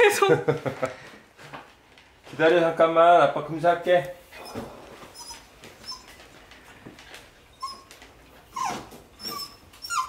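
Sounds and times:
dog whimpering: 4.3s - 6.3s, 7.5s - 10.0s.

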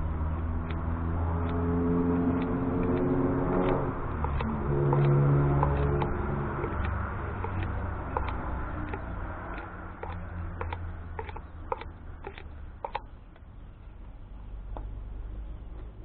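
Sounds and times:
scissors snipping: 0.4s - 13.1s.

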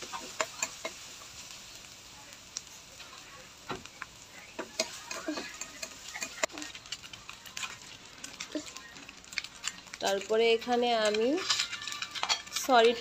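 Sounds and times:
onions sizzling in oil: 0.0s - 13.0s
spatula scraping a pan: 4.6s - 13.0s.

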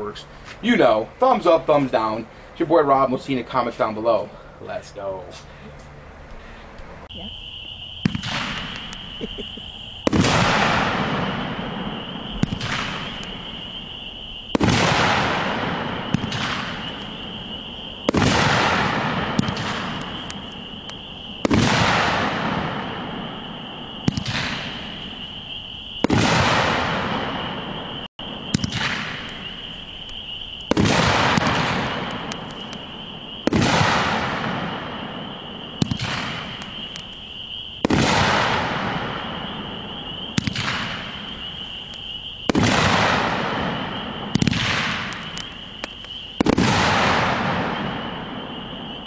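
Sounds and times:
firework bursting boom: 7.2s - 49.0s
firework launch thump: 8.0s - 11.5s, 14.5s - 17.0s.

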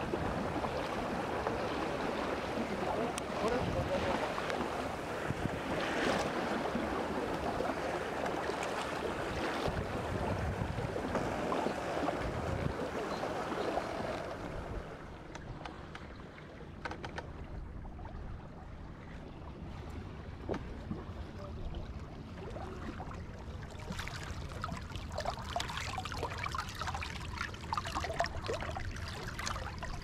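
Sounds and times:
wind buffeting microphone: 0.0s - 7.9s, 9.1s - 15.3s
water washing and splashing: 23.7s - 30.0s.

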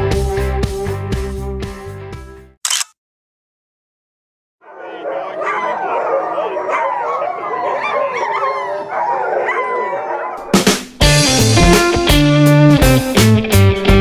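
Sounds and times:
sled dogs howling excitedly: 4.6s - 10.6s
rock guitar music: 10.5s - 14.0s.

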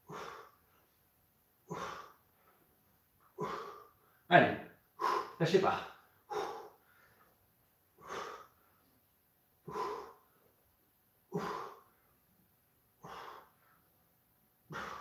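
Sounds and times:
man exhaling forcefully: 9.7s - 10.2s, 11.3s - 11.8s, 14.7s - 15.0s.

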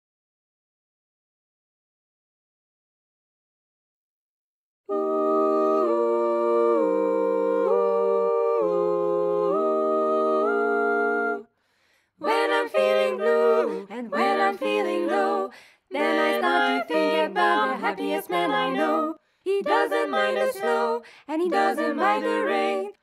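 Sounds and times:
barbershop quartet singing: 4.9s - 11.5s, 12.2s - 23.0s.

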